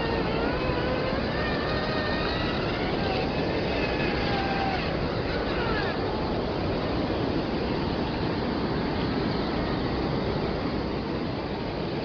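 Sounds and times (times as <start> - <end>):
electric motor whining: 0.0 - 8.1
steady rushing noise: 0.0 - 12.0.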